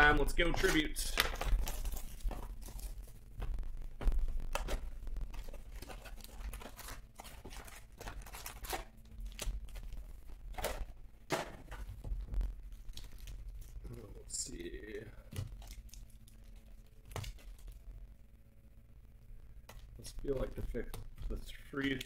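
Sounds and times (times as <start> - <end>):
packaging tearing and crinkling: 0.1 - 11.0, 11.7 - 14.0, 14.7 - 17.8.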